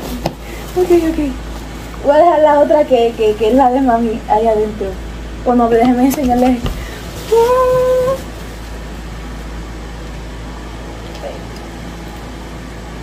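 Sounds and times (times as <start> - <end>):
electric fan humming: 0.0 - 13.0.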